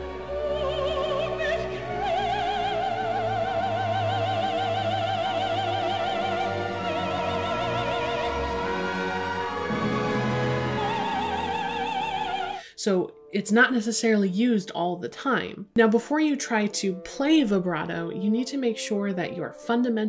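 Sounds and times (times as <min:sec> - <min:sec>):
operatic soprano singing: 0:00.0 - 0:14.7
orchestra playing: 0:05.4 - 0:13.6.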